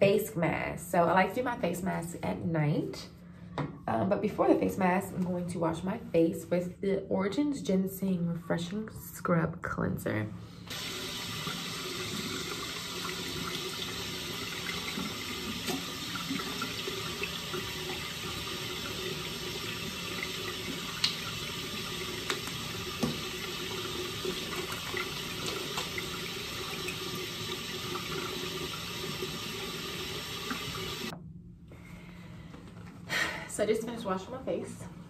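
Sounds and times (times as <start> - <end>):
tap running into sink: 10.7 - 31.2.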